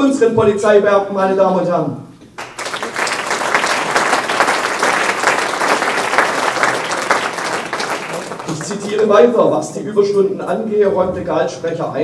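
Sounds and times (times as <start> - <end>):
audience applauding: 2.4 - 9.3.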